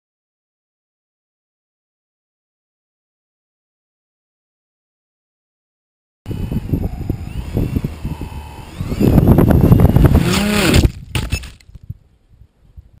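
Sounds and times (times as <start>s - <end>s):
drone scraping over gravel: 6.3s - 11.0s
electric motors whining: 6.3s - 11.6s.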